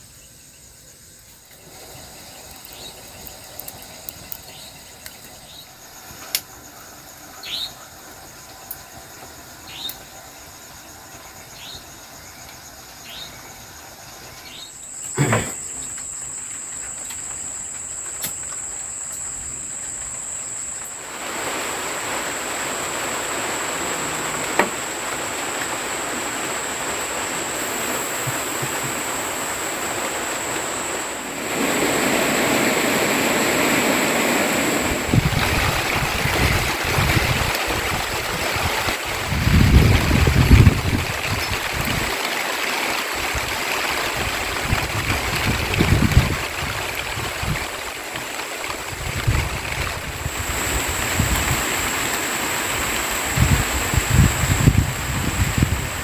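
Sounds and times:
high-pitched insect drone: 0.0 - 55.7
rain falling: 0.0 - 56.0
wind buffeting microphone: 27.5 - 42.2, 43.2 - 48.0, 48.6 - 56.0.

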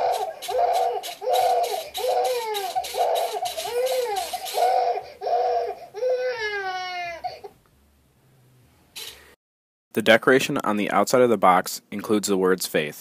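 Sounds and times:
recorded baby crying from speaker: 0.0 - 7.6.

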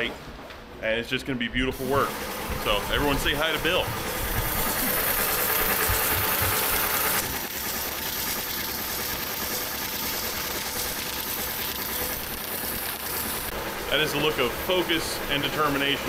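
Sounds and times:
sewing machine chattering: 2.1 - 14.4.

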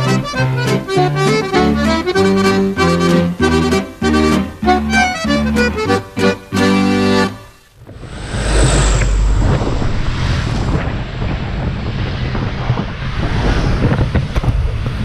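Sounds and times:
wind buffeting microphone: 7.8 - 15.0.

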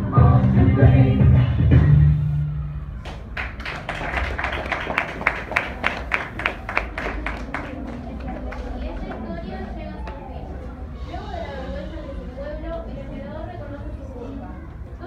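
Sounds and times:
audience clapping: 3.0 - 9.4.

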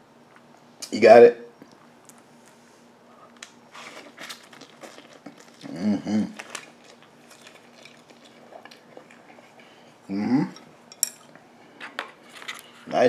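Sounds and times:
person chewing noodles: 3.3 - 11.4
person humming: 5.6 - 6.4, 10.1 - 10.6.

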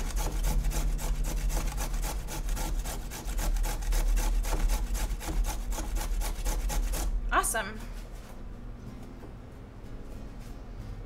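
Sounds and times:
carrot grated on a grater: 0.0 - 7.2.

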